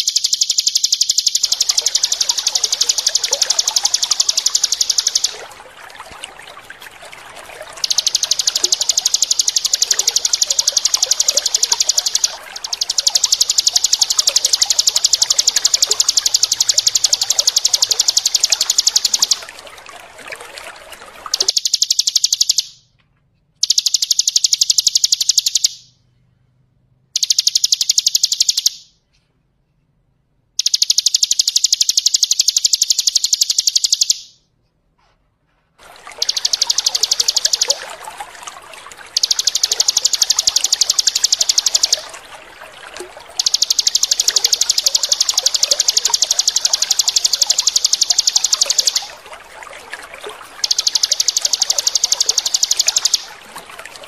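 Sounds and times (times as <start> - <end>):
bird singing rapid high trill: 0.0 - 19.9, 21.3 - 22.8, 30.6 - 34.4, 36.0 - 49.3, 50.3 - 53.4
trickling water: 0.0 - 22.9, 23.6 - 26.0, 27.1 - 28.9, 30.6 - 34.3, 35.8 - 54.0.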